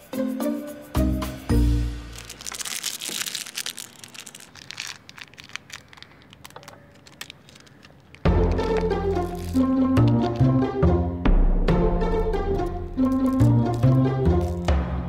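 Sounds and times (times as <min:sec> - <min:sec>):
background music: 0:00.0 - 0:03.1, 0:08.3 - 0:15.0
candy packet crinkling and tearing: 0:01.5 - 0:10.6, 0:12.6 - 0:15.0.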